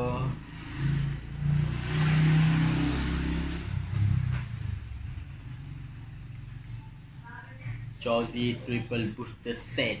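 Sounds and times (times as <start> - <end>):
passing vehicle engine: 0.0 - 7.2.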